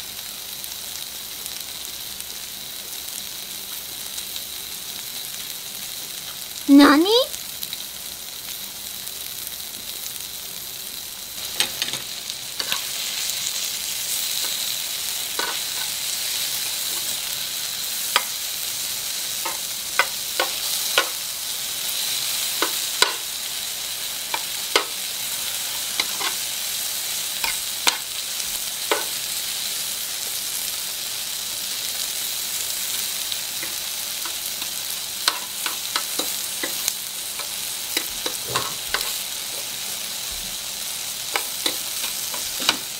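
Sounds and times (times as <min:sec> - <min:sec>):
food sizzling on a grill pan: 0:00.0 - 0:42.9
metal tongs tapping pan: 0:11.5 - 0:12.9, 0:15.4 - 0:16.0, 0:19.4 - 0:21.2, 0:22.6 - 0:23.3, 0:24.3 - 0:25.0, 0:26.0 - 0:26.4, 0:27.4 - 0:28.1, 0:28.9 - 0:29.2, 0:33.6 - 0:39.2, 0:41.3 - 0:42.9.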